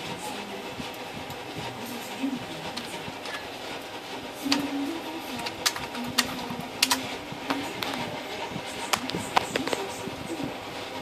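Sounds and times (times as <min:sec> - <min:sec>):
low background hum: 0:00.0 - 0:11.0
sharp irregular clicks: 0:05.4 - 0:07.1.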